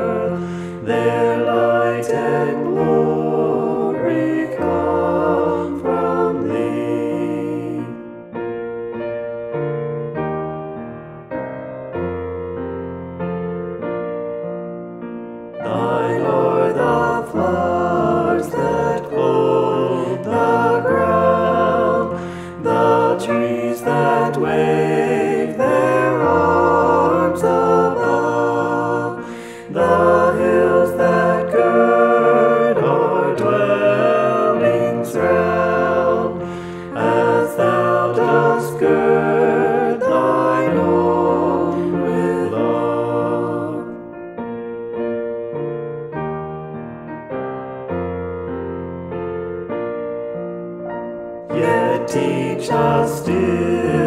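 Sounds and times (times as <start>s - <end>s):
voices singing a hymn: 0.0s - 8.4s, 15.6s - 44.2s, 51.4s - 54.0s.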